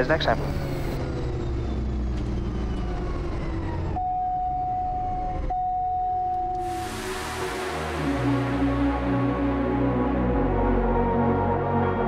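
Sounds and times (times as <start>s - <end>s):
turboprop engine winding down: 0.0s - 5.6s, 6.5s - 12.0s
steady high tone: 4.0s - 12.0s.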